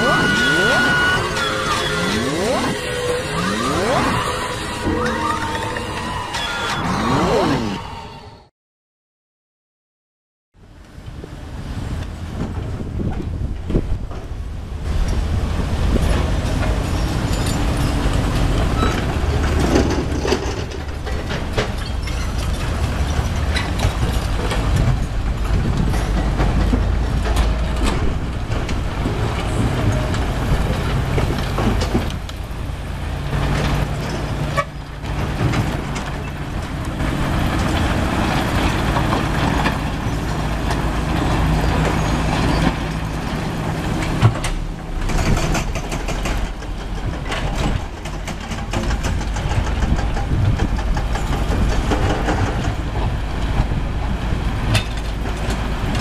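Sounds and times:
diesel engine running under load: 0.0s - 8.0s, 10.6s - 56.0s.

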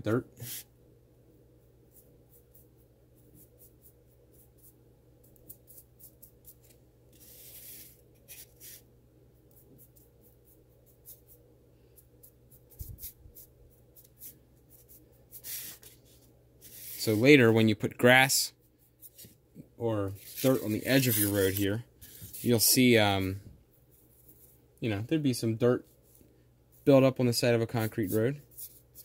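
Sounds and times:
low steady hum: 0.0s - 29.0s
paintbrush scratchy strokes: 0.4s - 0.7s, 1.6s - 17.5s, 20.0s - 24.7s, 25.6s - 29.0s.

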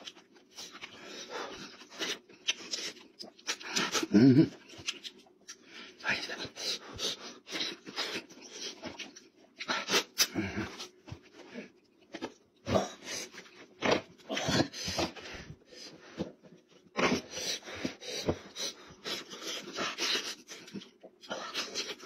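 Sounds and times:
wet chewing and lip-smacking: 1.6s - 5.7s.

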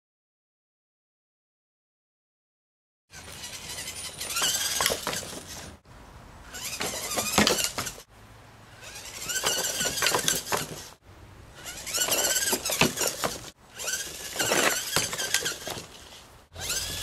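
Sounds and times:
robot motor and gears whining: 3.1s - 5.8s, 6.4s - 8.1s, 8.7s - 17.0s.

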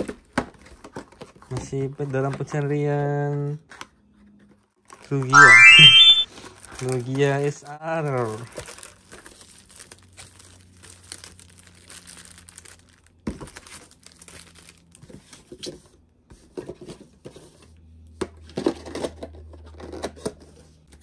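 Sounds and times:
foil wrapper crinkling and tearing: 8.6s - 14.8s.

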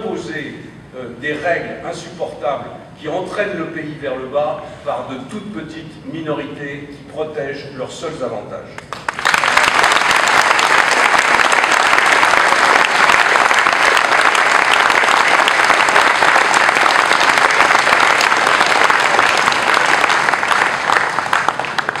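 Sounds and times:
audience applause: 8.9s - 22.0s.

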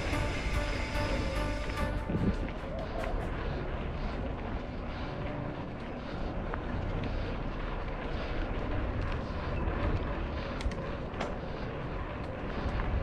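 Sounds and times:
wind on microphone: 0.0s - 4.8s
bike tyres rolling on dirt: 0.0s - 13.0s.

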